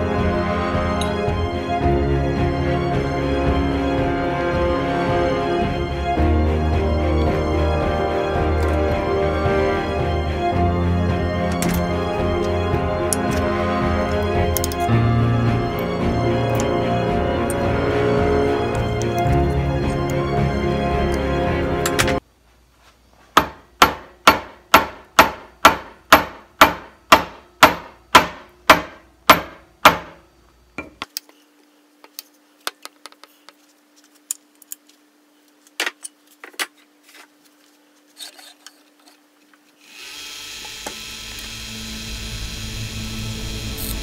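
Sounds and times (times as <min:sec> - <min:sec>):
wood lathe running: 0:39.8 - 0:44.0.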